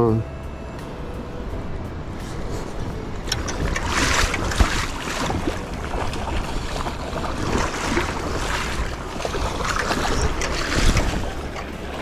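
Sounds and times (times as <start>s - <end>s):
moving water: 0.0s - 12.0s
wind buffeting microphone: 1.8s - 12.0s
fish splashing in shallow water: 3.2s - 12.0s.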